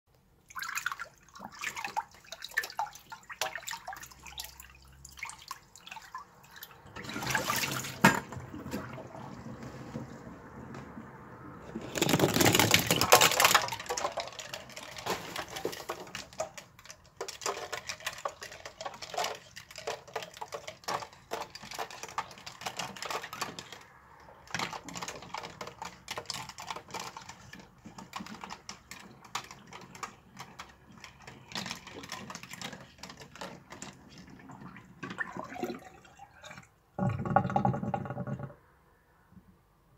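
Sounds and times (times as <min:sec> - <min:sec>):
plastic capsules clattering in sink: 0:06.9 - 0:08.4, 0:11.8 - 0:38.5
water swirling down drain: 0:33.6 - 0:38.5
drain gurgling: 0:34.1 - 0:38.5.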